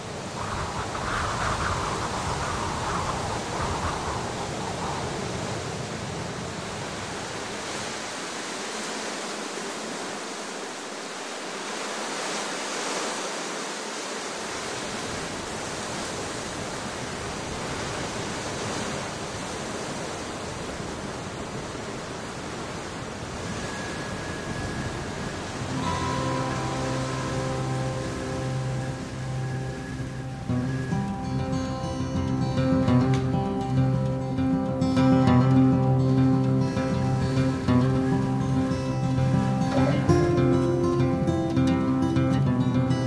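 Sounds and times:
strong wind rushing: 0.0 - 8.1, 14.5 - 42.4
wind rumble on microphone: 0.0 - 10.1, 14.2 - 43.0.

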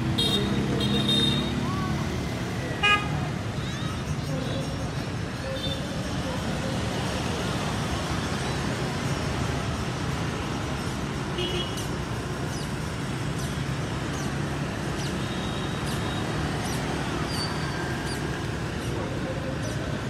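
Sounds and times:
passing motor scooters: 0.0 - 11.3, 11.9 - 20.0
small birds chirping: 12.2 - 20.0.

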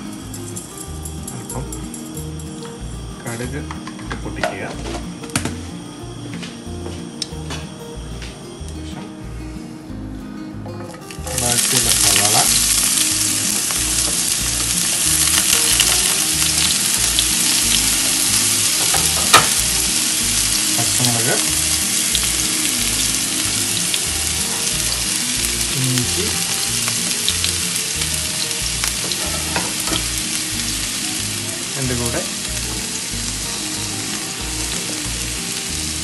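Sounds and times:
onion sizzling in hot oil: 0.0 - 7.7, 11.0 - 36.0.

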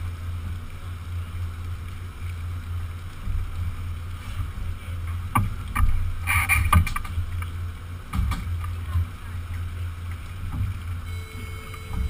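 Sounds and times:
boat engine hum: 0.0 - 12.0
sharp knocks and clatter: 8.1 - 9.1.

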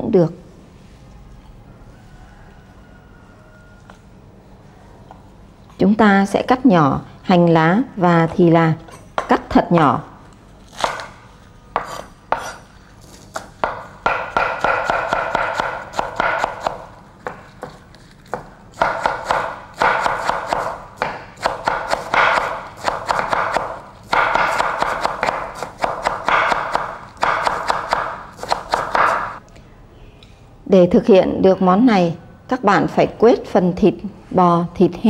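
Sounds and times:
cleaver chopping on wooden board: 13.4 - 29.4.

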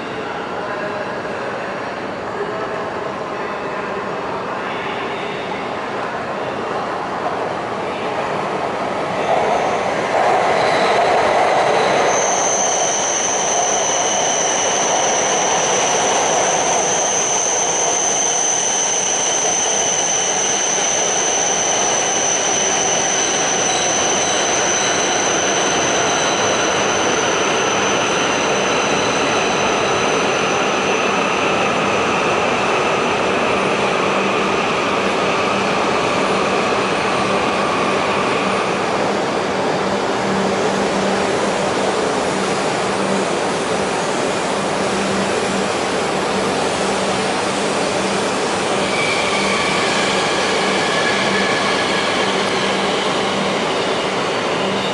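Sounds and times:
high-speed train rolling slowly: 0.0 - 54.9
high steady wheel squeal: 9.5 - 38.7, 46.8 - 54.9.

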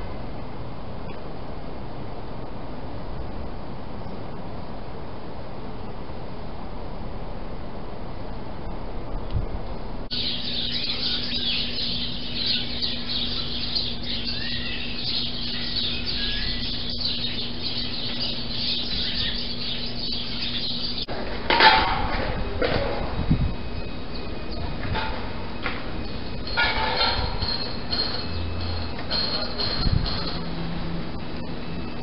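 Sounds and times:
steady low hum: 0.0 - 32.0
small birds chirping: 10.1 - 21.1, 23.2 - 30.3.

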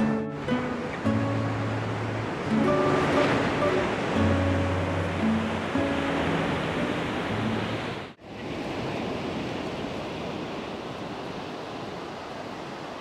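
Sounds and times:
acoustic guitar music: 0.0 - 8.1
surf washing onto beach: 0.0 - 13.0.

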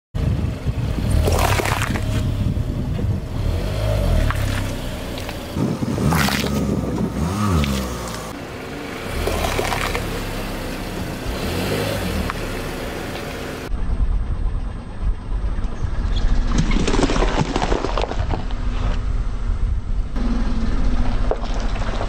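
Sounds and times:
car engine rumbling: 0.1 - 16.9, 17.9 - 22.0
tyre noise on asphalt: 0.2 - 14.1, 15.4 - 22.0
peppers crunching under tyre: 1.2 - 2.2, 6.1 - 6.8.

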